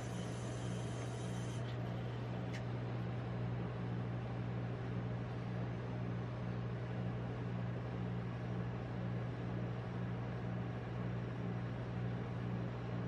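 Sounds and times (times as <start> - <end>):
refrigeration machine hum: 0.0 - 7.4.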